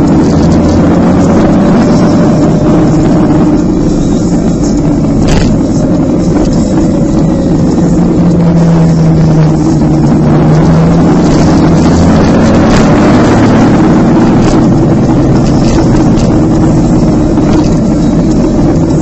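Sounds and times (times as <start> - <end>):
motorcycle engine running: 0.0 - 19.0
wind rushing over microphone: 4.8 - 19.0.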